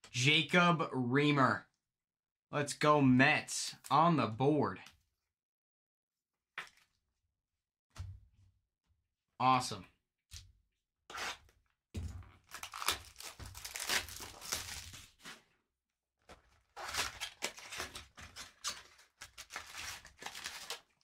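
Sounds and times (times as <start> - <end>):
card wrapper tearing and crinkling: 12.4 - 15.2, 16.4 - 21.0.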